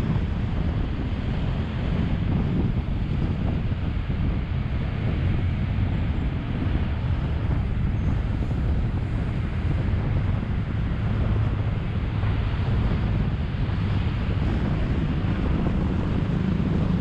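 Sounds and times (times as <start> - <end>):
road traffic rumble: 0.0 - 17.0
wind on microphone: 0.0 - 17.0.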